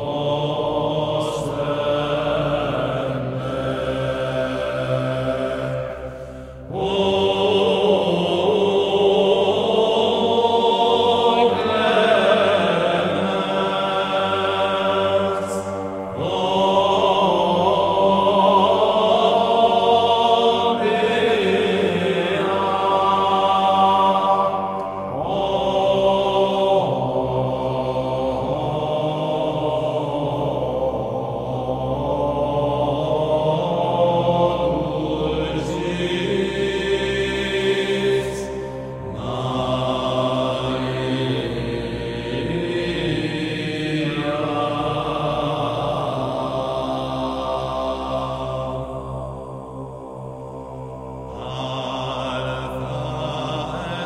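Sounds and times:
chanted vocal music: 0.0 - 54.0.

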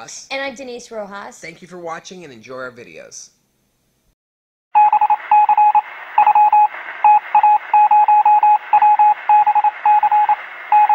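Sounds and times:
rapid electronic beeps: 4.8 - 10.9
radio-like hiss: 5.1 - 10.9.

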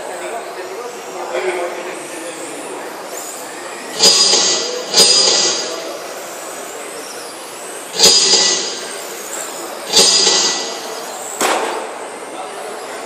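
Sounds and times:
tyres hissing on track: 0.0 - 11.4
sudden loud noise bursts: 3.9 - 5.9, 7.9 - 9.1, 9.9 - 11.9.

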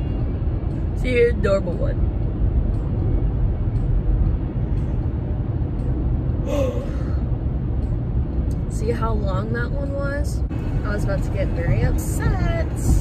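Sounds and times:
road rumble inside a car: 0.0 - 13.0
woman yawning: 6.5 - 7.0.

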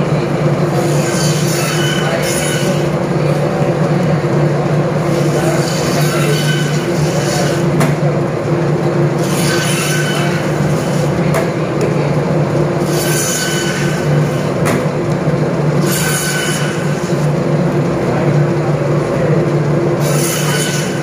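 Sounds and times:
band saw motor hum: 0.0 - 21.0
saw blade rasping through bone: 0.8 - 2.9, 5.2 - 7.7, 9.2 - 11.1, 20.0 - 21.0.

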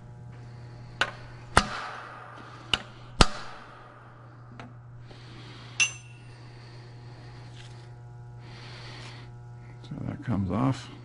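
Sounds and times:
hammer striking chisel on metal: 5.8 - 6.2.

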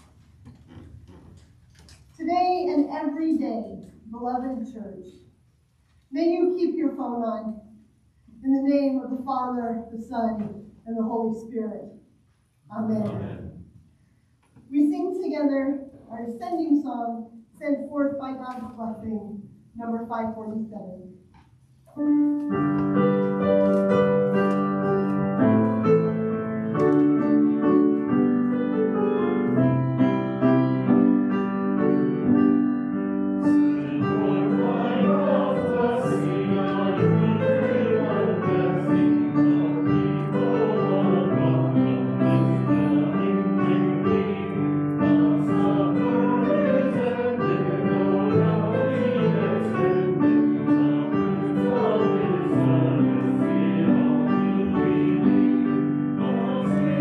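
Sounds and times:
congregation singing a hymn: 12.7 - 13.7, 22.1 - 57.0
piano playing: 21.9 - 57.0.

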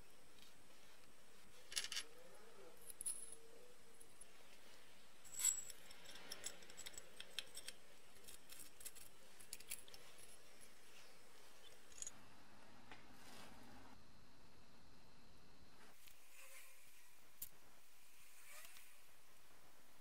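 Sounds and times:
metal fittings clicking and clinking: 5.3 - 10.4.

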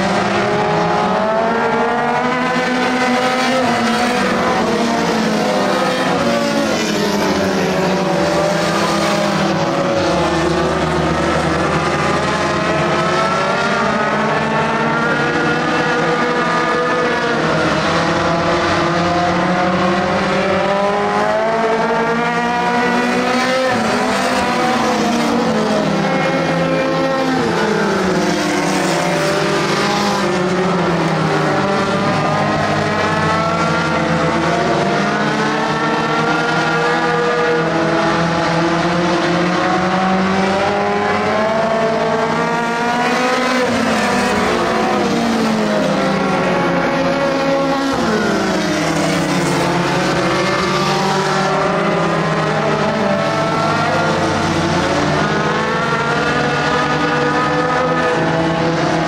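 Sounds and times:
race car engines revving: 0.0 - 59.0.

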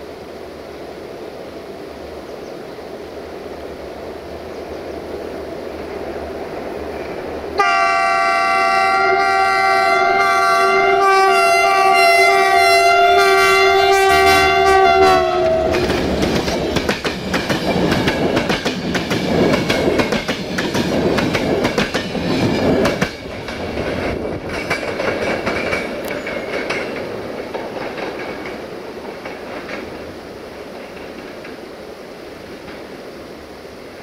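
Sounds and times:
train rumbling and clacking past: 0.0 - 33.2
diesel locomotive horn: 7.6 - 16.0.

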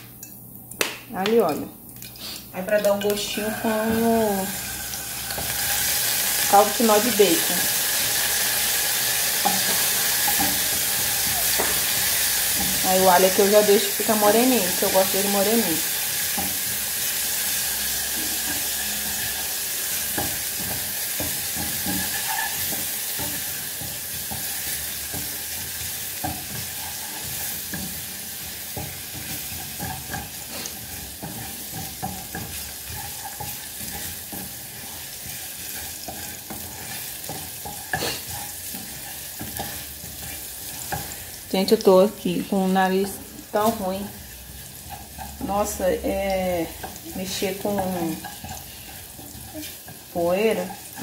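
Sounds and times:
garlic sizzling in oil: 2.0 - 51.0
wooden spoon scraping a pan: 5.3 - 51.0.

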